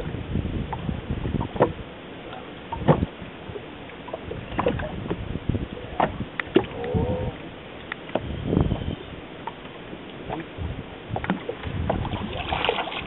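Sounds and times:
water lapping against boat hull: 0:00.0 - 0:13.0
short knocks and splashes: 0:04.5 - 0:05.2, 0:11.2 - 0:13.0.

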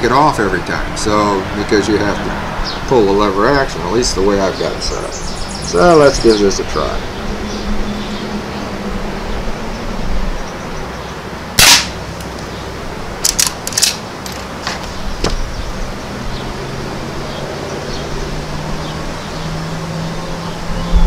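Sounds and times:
quiet rifle shot: 0:11.6 - 0:12.3
rifle lever clicking: 0:13.2 - 0:14.5.

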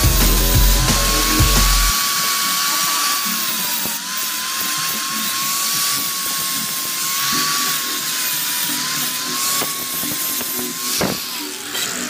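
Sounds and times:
angle grinder grinding steel: 0:00.0 - 0:12.0.

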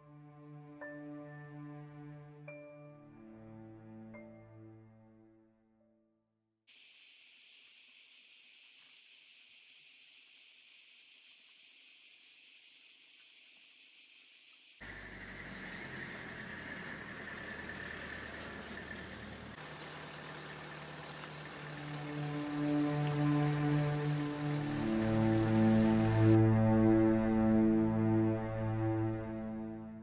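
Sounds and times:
high-pitched hiss: 0:06.7 - 0:26.4.

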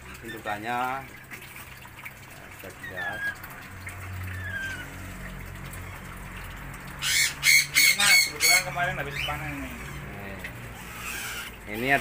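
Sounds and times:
lorikeets screeching: 0:07.0 - 0:12.0.

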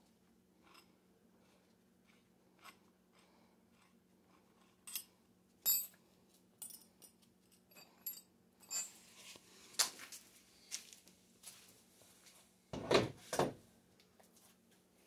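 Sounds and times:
metal clinks and knocks: 0:04.8 - 0:06.0, 0:06.6 - 0:09.0.

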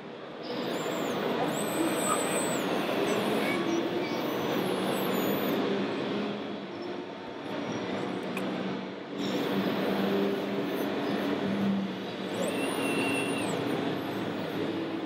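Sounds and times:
small electric motors whining: 0:00.4 - 0:05.8, 0:09.2 - 0:15.0.

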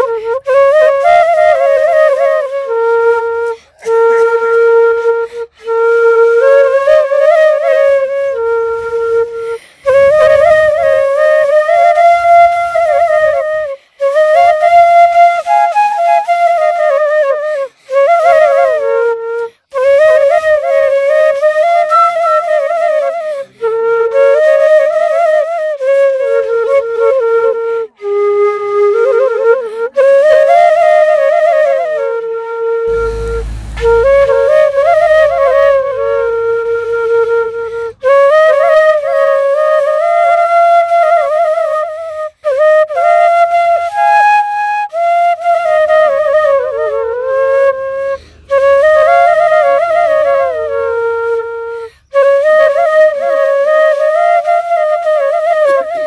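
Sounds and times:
solo flute melody: 0:00.0 - 0:56.0
low rumble: 0:09.2 - 0:11.5, 0:32.9 - 0:38.0.

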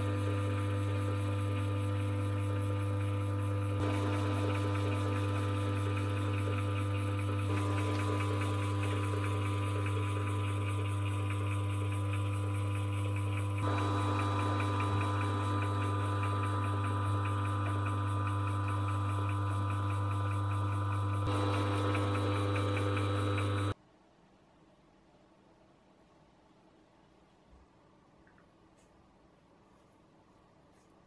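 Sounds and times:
lathe motor humming: 0:00.0 - 0:23.8.

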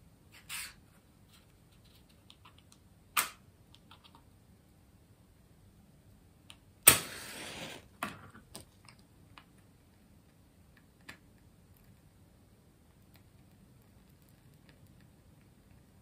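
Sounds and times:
match struck and flaring: 0:06.8 - 0:07.9.

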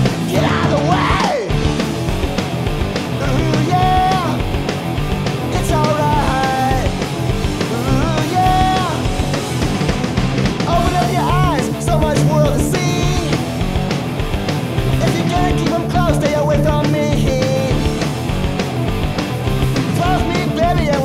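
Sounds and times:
bass guitar: 0:00.0 - 0:21.0
drums: 0:00.0 - 0:21.0
electric guitar: 0:00.0 - 0:21.0.

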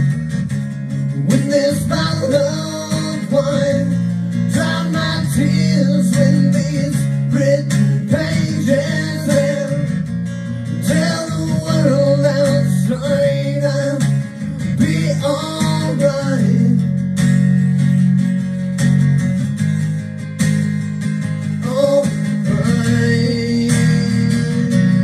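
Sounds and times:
strummed acoustic guitar: 0:00.0 - 0:25.0
person singing: 0:01.1 - 0:17.0, 0:21.6 - 0:25.0.

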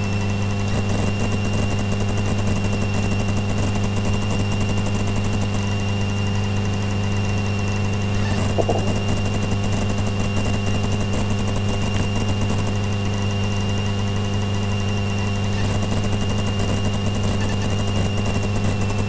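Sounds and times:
propeller engine droning: 0:07.9 - 0:10.0
high-pitched whine: 0:08.1 - 0:10.3.

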